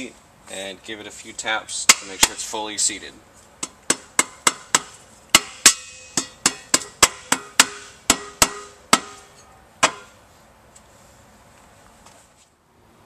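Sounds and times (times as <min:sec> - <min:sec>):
mallet tapping on metal: 0:03.6 - 0:10.1.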